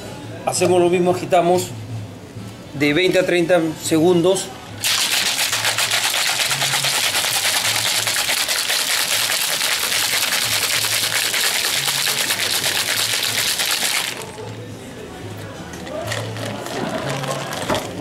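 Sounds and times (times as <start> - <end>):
ice rattling in cocktail shaker: 4.8 - 14.5, 15.8 - 18.0.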